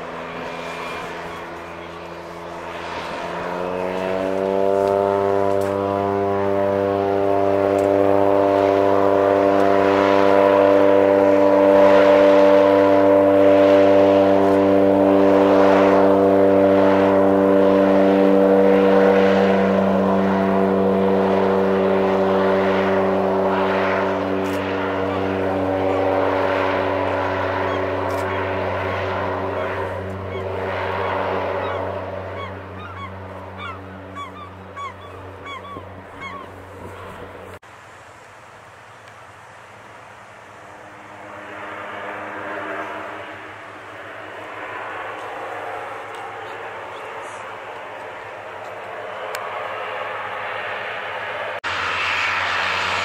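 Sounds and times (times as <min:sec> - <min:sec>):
distant aircraft drone: 0:00.0 - 0:53.0
propeller plane engine drone: 0:00.0 - 0:53.0
birds chirping: 0:00.8 - 0:02.7, 0:24.9 - 0:37.5, 0:46.1 - 0:48.8.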